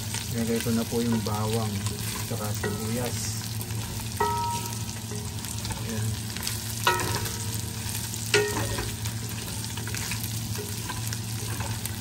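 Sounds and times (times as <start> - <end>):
meat sizzling in a pan: 0.0 - 12.0
spatula knocking on pan: 4.2 - 4.9, 6.8 - 7.6.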